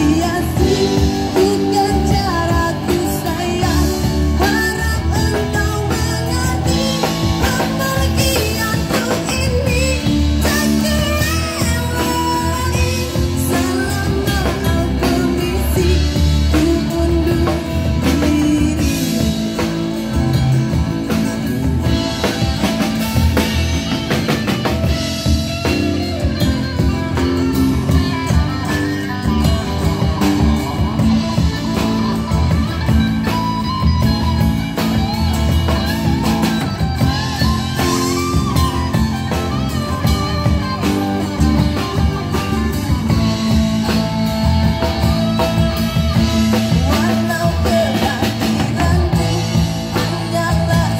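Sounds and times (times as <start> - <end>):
woman singing: 0.0 - 19.7, 46.1 - 50.9
drum kit: 0.0 - 50.9
electric guitar: 0.0 - 50.9.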